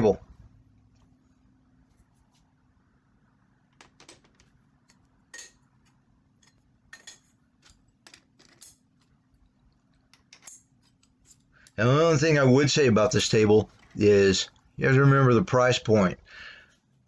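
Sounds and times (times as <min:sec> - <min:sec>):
metal tubing clinking on steel table: 0:04.9 - 0:05.7, 0:06.4 - 0:09.1, 0:10.0 - 0:11.8.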